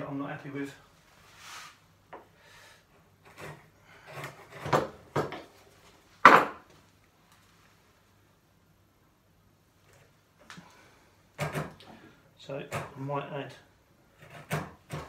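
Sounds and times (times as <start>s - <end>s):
chisel scraping wood: 3.2s - 5.4s, 11.4s - 11.8s, 12.6s - 13.0s, 14.1s - 15.0s.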